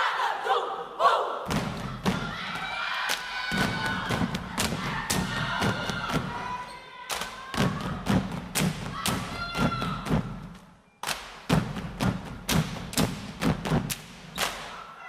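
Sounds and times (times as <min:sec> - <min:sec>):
rhythmic stomping and clapping: 0:01.5 - 0:14.8.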